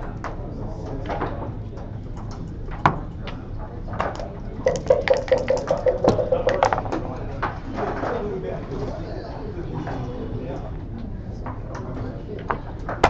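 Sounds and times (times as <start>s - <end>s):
dice rattling in cup: 4.7s - 6.9s.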